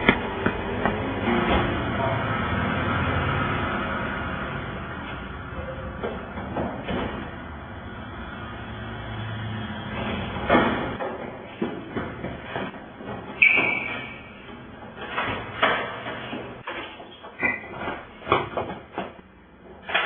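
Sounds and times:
doors banging shut: 10.3 - 19.2
short high squeak: 13.4 - 14.3.

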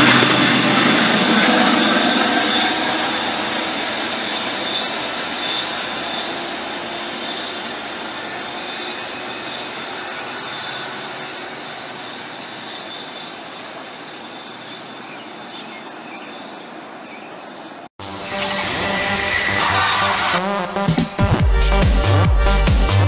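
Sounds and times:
train running on track: 0.0 - 23.0
thin high tone: 7.1 - 17.4
electronic music: 18.0 - 23.0.

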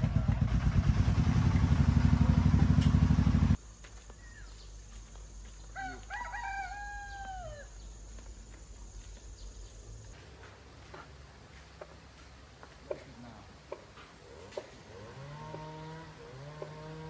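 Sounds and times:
small engine running: 0.0 - 3.6, 14.8 - 17.0
rooster crowing: 5.8 - 7.8.

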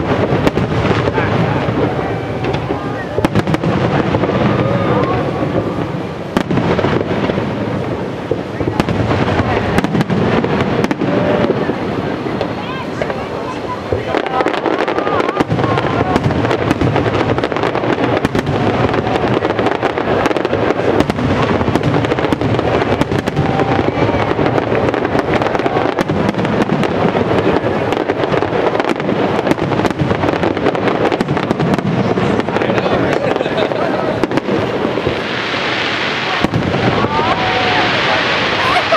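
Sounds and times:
fireworks pops and crackles: 0.0 - 38.9.

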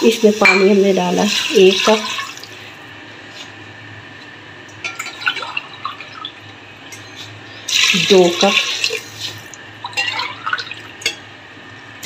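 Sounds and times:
low steady hum: 0.0 - 12.0
water being poured: 1.3 - 2.6, 5.0 - 6.6, 7.7 - 11.0.

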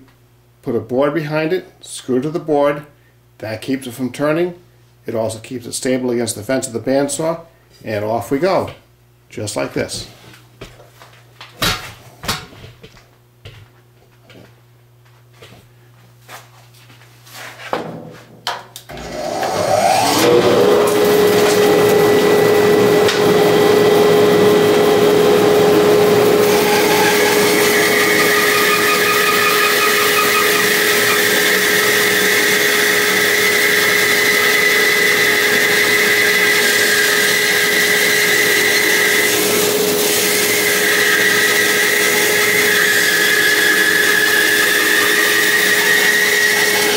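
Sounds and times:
bandsaw blade cutting wood: 18.9 - 46.9
bandsaw motor whine: 18.9 - 46.9.

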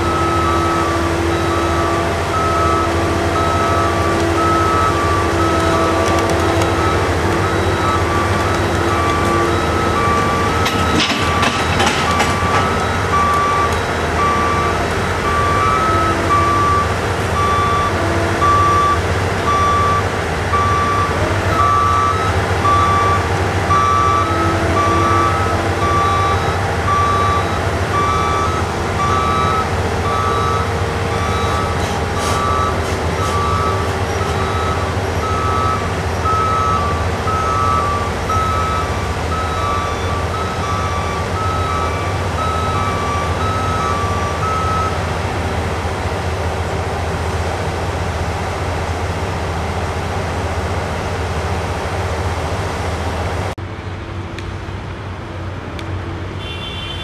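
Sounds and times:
two-tone reversing alarm beeping: 0.0 - 45.0
diesel engines rumbling: 0.0 - 57.0.

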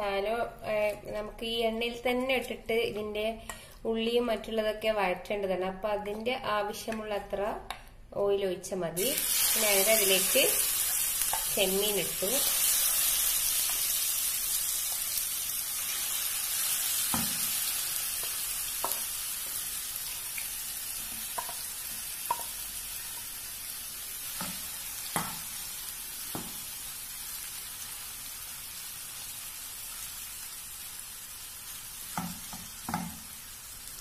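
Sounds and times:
prawns sizzling in oil: 9.0 - 34.0.

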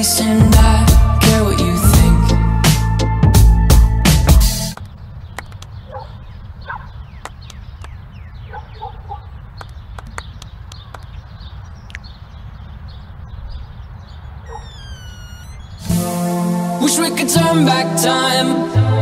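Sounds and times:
sharp clicks: 4.7 - 5.8, 7.2 - 8.0, 9.5 - 11.2
chirping animal calls: 4.9 - 16.0.

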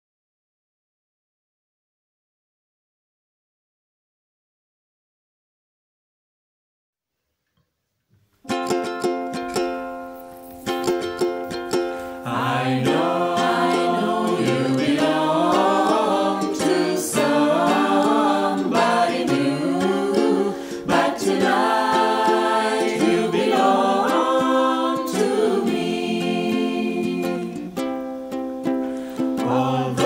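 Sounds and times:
ukulele strumming: 8.4 - 30.0
choir singing slow song: 10.9 - 30.0.

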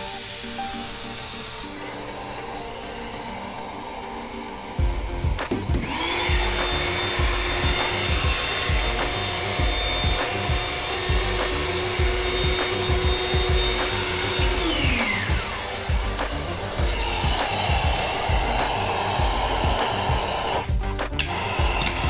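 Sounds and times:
electric air pump whining: 0.0 - 22.0.

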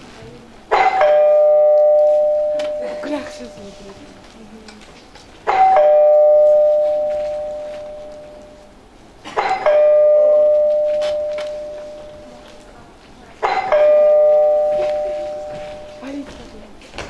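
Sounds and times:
two-tone doorbell chime: 0.8 - 3.6, 5.5 - 8.7, 9.5 - 12.4, 13.6 - 16.0.

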